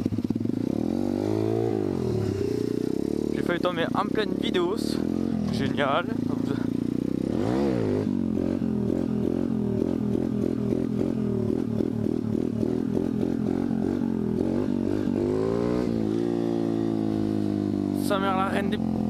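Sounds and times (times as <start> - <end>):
dirt bike engine revving: 0.0 - 19.0.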